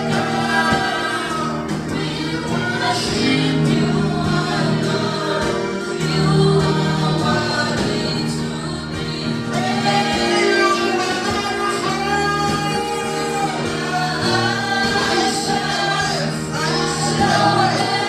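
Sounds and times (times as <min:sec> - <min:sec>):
gospel choir singing over a beat: 0:00.0 - 0:18.0.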